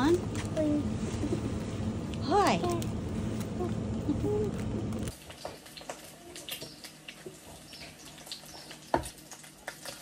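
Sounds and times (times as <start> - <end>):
food sizzling in a pan: 5.0 - 10.0.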